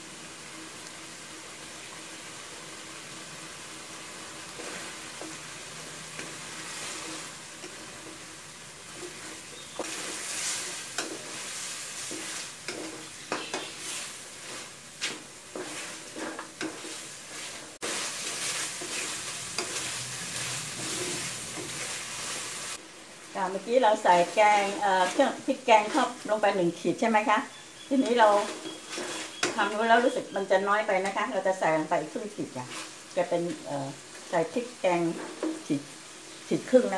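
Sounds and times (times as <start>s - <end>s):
chicken sizzling in a pot: 0.0s - 36.9s
spatula scraping a pot: 4.5s - 5.4s, 6.1s - 22.6s, 24.6s - 26.3s, 28.0s - 30.2s.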